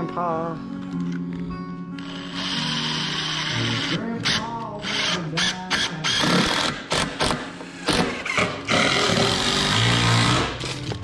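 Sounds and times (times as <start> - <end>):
cordless driver running: 2.0 - 10.6.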